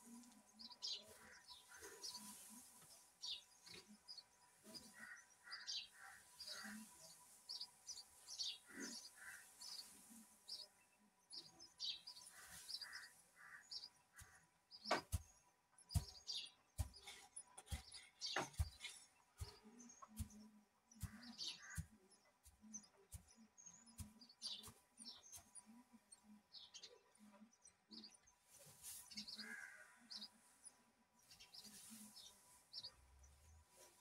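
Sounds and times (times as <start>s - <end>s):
birds chirping: 0.0s - 34.0s.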